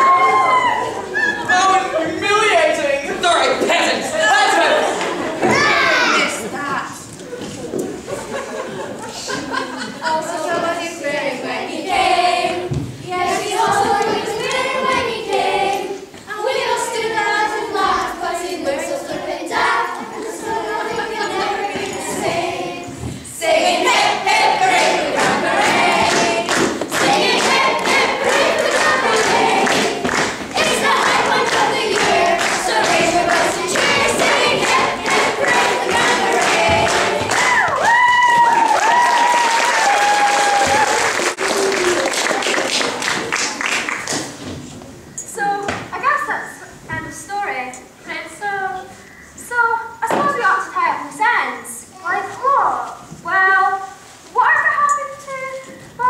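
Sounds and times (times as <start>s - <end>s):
children and adults singing together: 8.8s - 38.0s
audience applauding: 24.8s - 44.4s.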